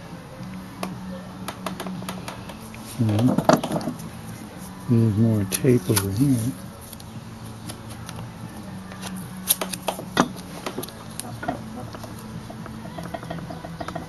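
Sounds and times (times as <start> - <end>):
steady low hum: 0.0 - 14.0
tape tearing: 8.9 - 11.3.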